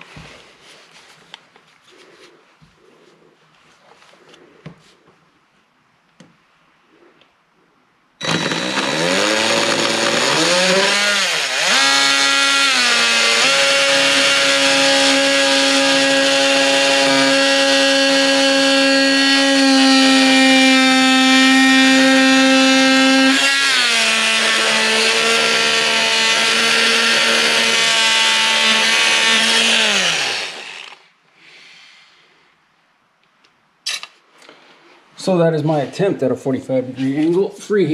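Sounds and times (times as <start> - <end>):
power saw cutting wood: 8.2 - 31.1.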